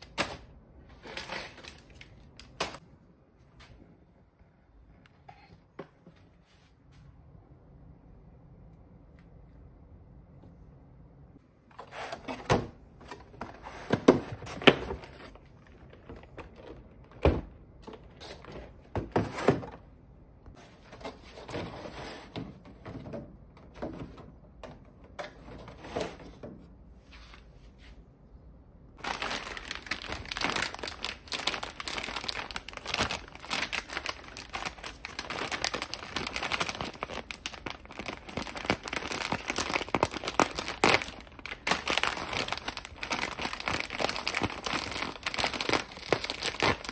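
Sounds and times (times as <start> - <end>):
plastic wrappers crinkling: 1.0 - 2.8, 29.0 - 46.9.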